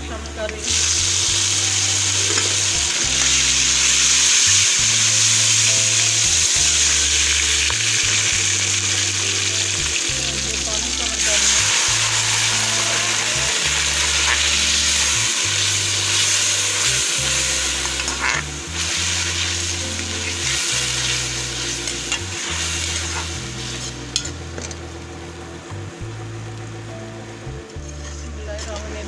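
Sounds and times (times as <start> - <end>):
vegetables sizzling in hot oil: 0.4 - 27.7
metal ladle scraping pan: 11.2 - 24.4.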